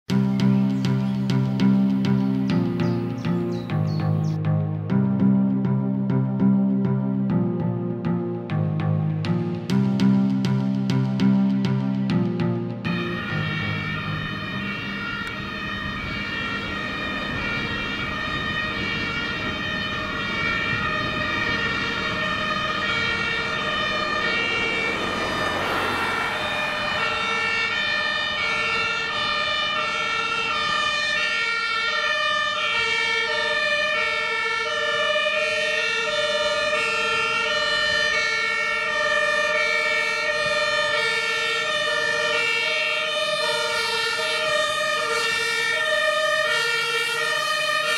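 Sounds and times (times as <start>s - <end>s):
road and engine noise: 0.0s - 47.9s
two-tone sirens: 0.0s - 47.9s
passing vehicle: 12.9s - 31.4s.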